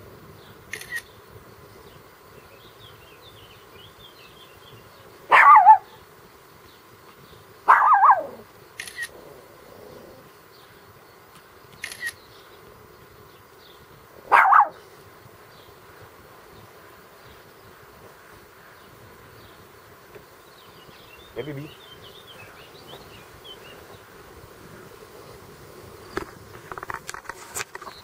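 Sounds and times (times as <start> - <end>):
short sharp clicks: 11.7 - 12.2.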